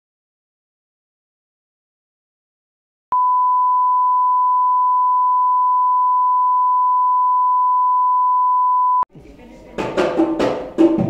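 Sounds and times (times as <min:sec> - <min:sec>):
steady pure test tone beep: 0:03.1 - 0:09.0.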